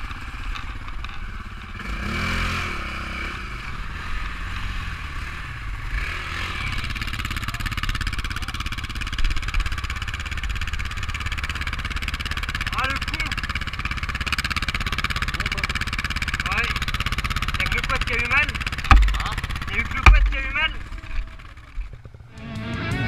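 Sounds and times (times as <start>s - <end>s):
quad bike engine revving: 0.0s - 23.0s
sharp knock: 18.8s - 20.7s.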